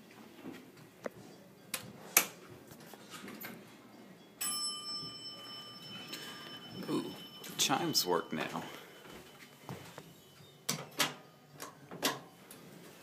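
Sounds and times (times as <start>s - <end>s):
steady high multi-pitch tone: 3.9s - 11.9s.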